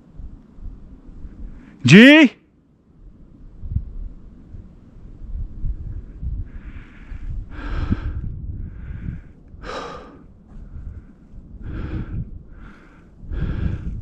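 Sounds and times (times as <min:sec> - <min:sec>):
person breathing heavily: 0:06.4 - 0:14.0.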